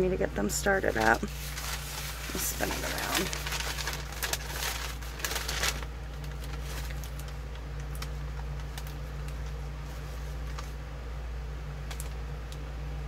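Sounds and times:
steady low hum: 0:00.0 - 0:13.0
paper crinkling and rustling: 0:00.7 - 0:10.8.

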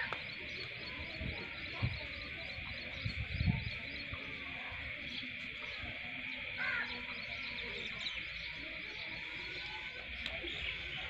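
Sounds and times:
birds chirping: 0:00.0 - 0:11.0
insect chorus: 0:00.0 - 0:11.0.

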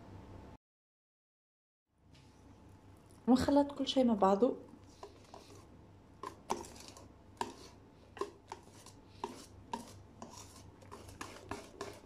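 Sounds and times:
batter swishing: 0:04.9 - 0:12.0
whisk tapping metal bowl: 0:06.2 - 0:12.0.

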